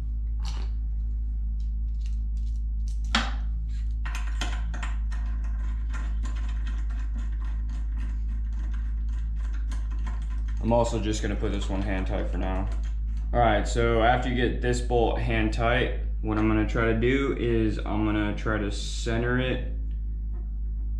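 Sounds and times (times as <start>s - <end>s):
steady low hum: 0.0s - 20.9s
rapid irregular ticking: 4.7s - 13.8s.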